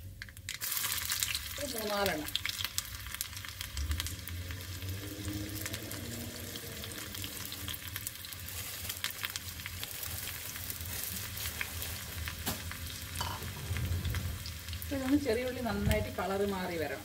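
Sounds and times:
food sizzling in oil: 0.2s - 17.0s
low hum: 3.5s - 8.2s.

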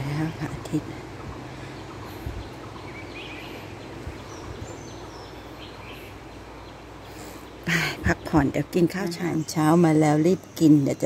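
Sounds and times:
bird chirps: 0.0s - 11.0s
steady background hiss: 0.0s - 11.0s.

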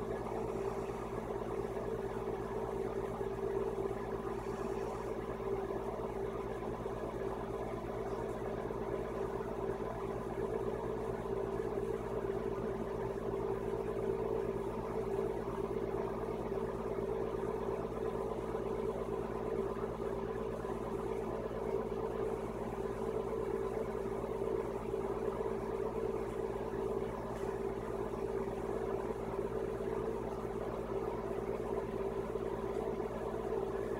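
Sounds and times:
mechanical hum: 0.0s - 33.9s.

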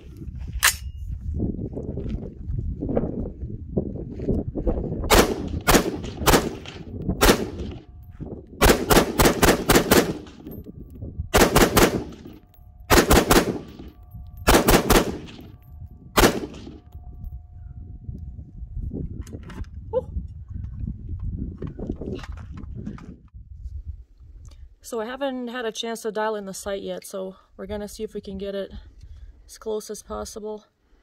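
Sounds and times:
pistol gunshots: 5.1s - 7.9s, 8.6s - 10.5s, 11.3s - 15.6s, 16.2s - 16.8s.

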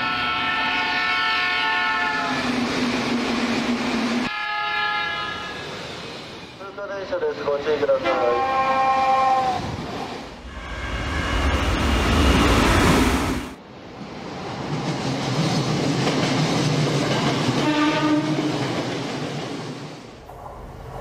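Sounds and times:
train horn blast: 0.0s - 2.3s, 4.3s - 5.6s, 8.0s - 9.6s, 17.6s - 18.5s
train wheels clattering on rails: 14.5s - 21.0s.

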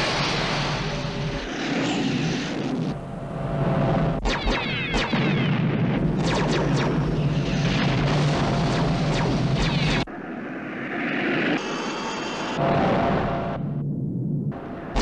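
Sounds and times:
explosions: 0.0s - 3.0s
laser-fire shots: 4.2s - 10.1s.

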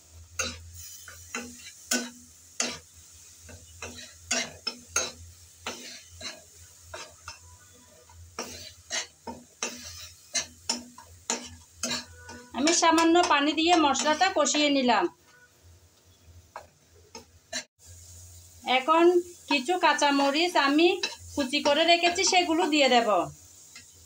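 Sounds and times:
faint sizzle: 0.0s - 24.0s
metal spatula scraping a pan: 0.1s - 14.6s, 17.1s - 17.7s, 20.2s - 22.8s.

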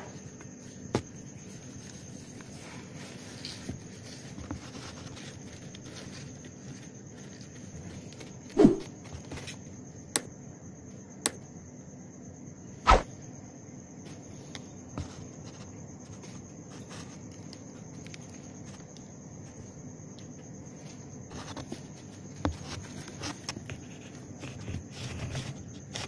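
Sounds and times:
faint high whine: 11.6s - 13.6s.

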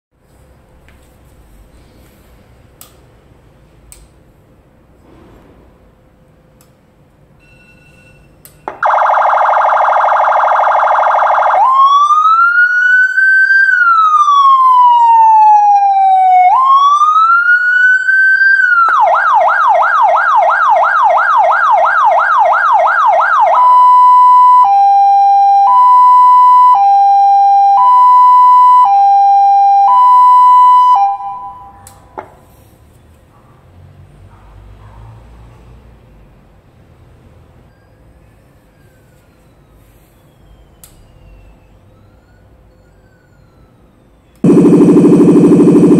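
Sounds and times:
click: 2.8s - 3.0s, 3.9s - 4.1s, 40.8s - 41.0s
electronic siren: 8.7s - 31.8s, 40.4s - 45.9s.

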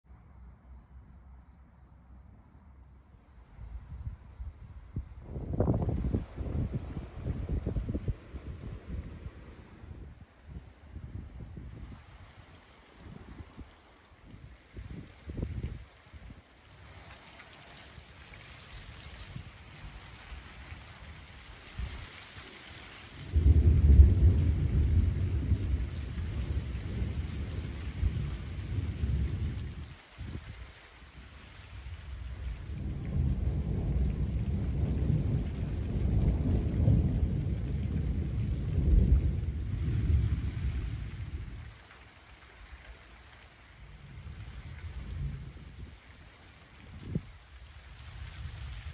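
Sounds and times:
cricket chirping: 0.1s - 5.8s, 10.0s - 16.6s
soft hiss of rain: 0.2s - 48.9s
thunder rumbling: 3.6s - 10.2s, 23.2s - 30.4s, 31.7s - 41.9s, 43.8s - 46.0s.

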